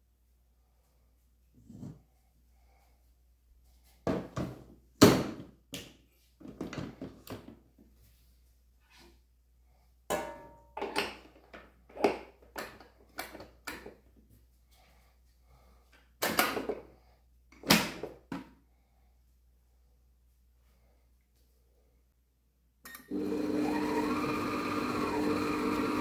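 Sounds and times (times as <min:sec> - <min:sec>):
baking tools knocking and clattering: 0:10.1 - 0:13.9.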